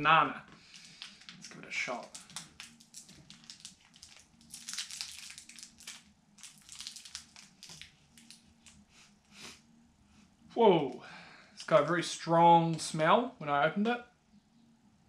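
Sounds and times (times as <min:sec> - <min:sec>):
candy wrapper crinkling: 0:00.7 - 0:08.9.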